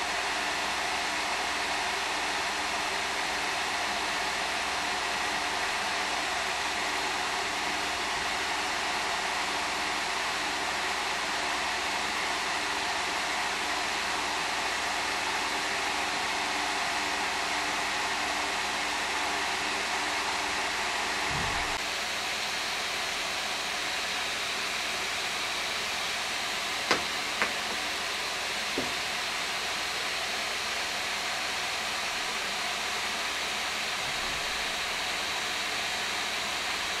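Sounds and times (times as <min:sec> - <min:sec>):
cooling fans whooshing: 0:21.2 - 0:22.3, 0:26.1 - 0:30.3.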